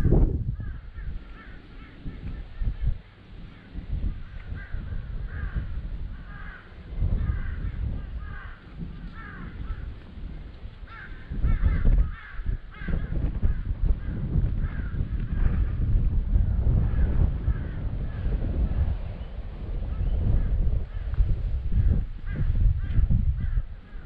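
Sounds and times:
wind rumbling on microphone: 0:00.0 - 0:24.0
bird calling: 0:00.6 - 0:10.0.

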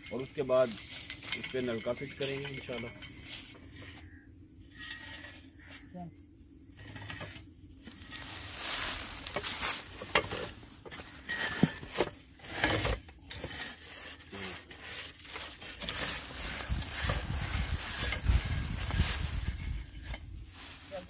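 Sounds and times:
chain clinking against iron pipe: 0:00.0 - 0:03.6
rustling: 0:06.8 - 0:21.0.

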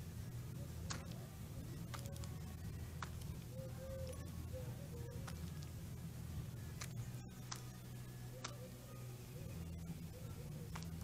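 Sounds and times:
steady low hum: 0:00.0 - 0:11.0
bird's bill clicking on plastic tub: 0:05.2 - 0:05.7, 0:10.7 - 0:11.0.

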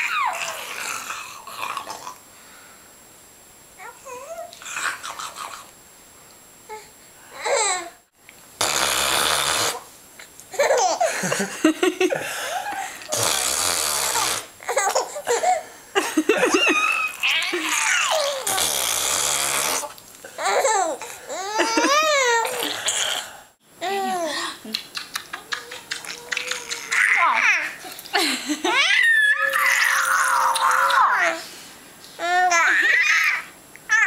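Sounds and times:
baby laughing and squealing: 0:00.0 - 0:00.6, 0:10.5 - 0:11.1, 0:14.6 - 0:15.6, 0:16.6 - 0:18.6, 0:20.4 - 0:22.7, 0:24.9 - 0:27.9, 0:28.6 - 0:31.4, 0:32.2 - 0:34.0
baby cooing babble: 0:00.0 - 0:01.9, 0:03.8 - 0:05.6, 0:14.1 - 0:15.6, 0:16.8 - 0:18.7, 0:20.4 - 0:23.1, 0:25.3 - 0:28.0, 0:28.7 - 0:31.4, 0:32.2 - 0:34.0
breathy bursts: 0:22.4 - 0:24.7.

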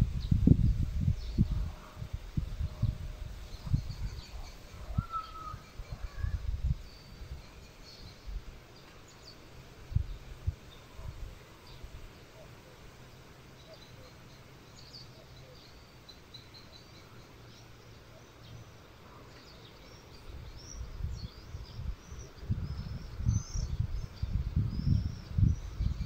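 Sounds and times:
wind buffeting microphone: 0:00.0 - 0:08.6, 0:09.7 - 0:11.9, 0:20.2 - 0:26.0
small birds chirping: 0:02.8 - 0:26.0.

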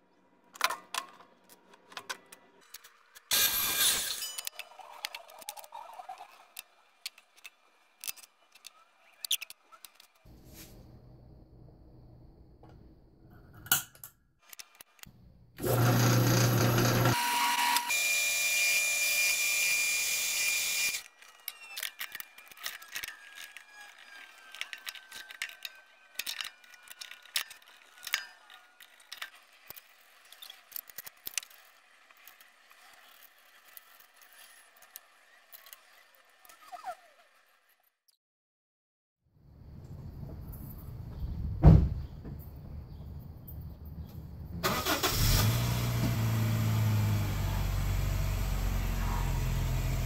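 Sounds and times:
drill boring through plastic: 0:15.6 - 0:37.8.

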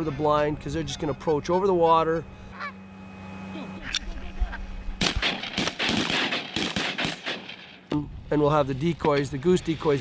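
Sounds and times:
shotgun fire volley: 0:05.0 - 0:07.8.

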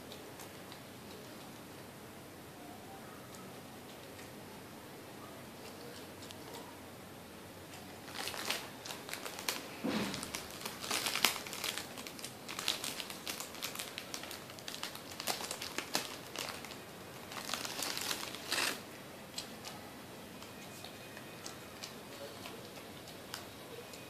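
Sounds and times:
plastic packet crinkling: 0:08.0 - 0:18.8.

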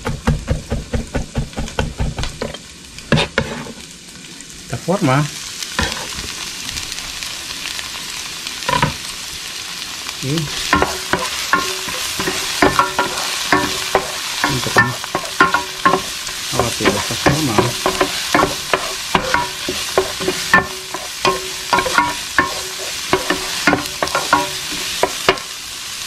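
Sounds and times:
onions sizzling in oil: 0:00.0 - 0:26.0
wooden spoon scraping a pan: 0:02.3 - 0:03.9, 0:05.8 - 0:06.2, 0:10.5 - 0:25.5.

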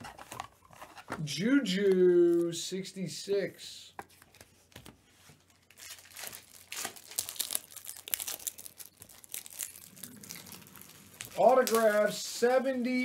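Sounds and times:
cards and foil wrapper rustling: 0:04.2 - 0:13.0.

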